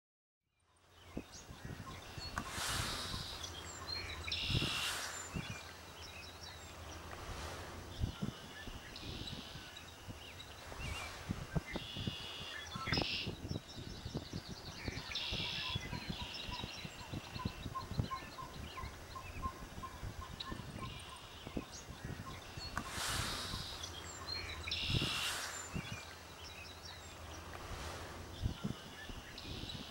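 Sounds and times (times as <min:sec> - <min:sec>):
birds chirping: 0:00.6 - 0:29.9.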